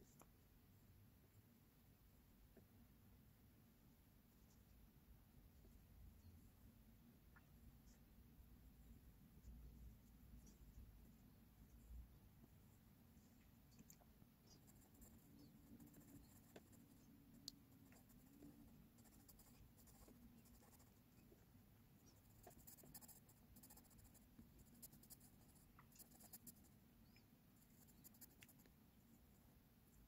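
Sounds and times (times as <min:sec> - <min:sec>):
low steady hum: 0:00.0 - 0:30.0
pencil scratching on paper: 0:14.5 - 0:17.1, 0:17.8 - 0:21.0, 0:22.0 - 0:26.6, 0:27.6 - 0:28.7.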